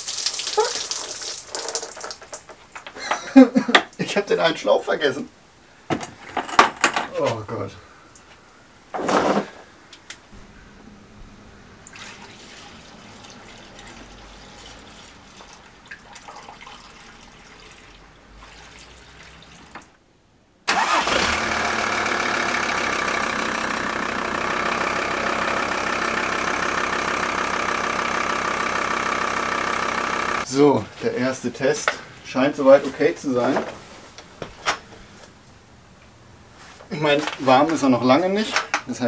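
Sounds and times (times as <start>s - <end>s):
diesel engine idling: 20.7s - 30.5s.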